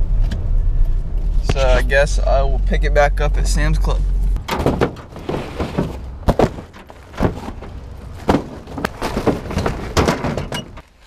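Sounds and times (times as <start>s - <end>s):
cardboard boxes thumping and scraping: 4.4s - 10.8s.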